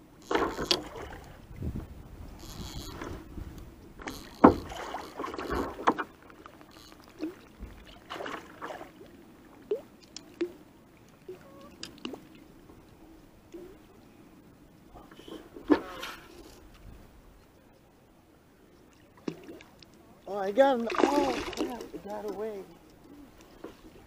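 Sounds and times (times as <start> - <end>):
low steady background noise: 0.0 - 24.0
gear knocking against kayak: 0.2 - 1.0, 4.0 - 7.8.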